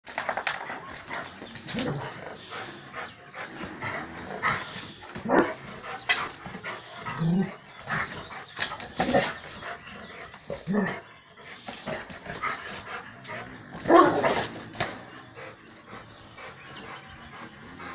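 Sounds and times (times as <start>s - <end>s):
dog barking: 13.8s - 14.5s.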